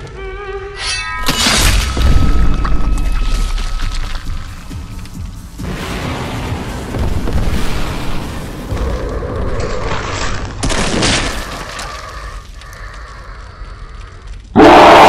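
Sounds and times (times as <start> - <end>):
deep rumbling explosion booms: 5.6 - 9.5.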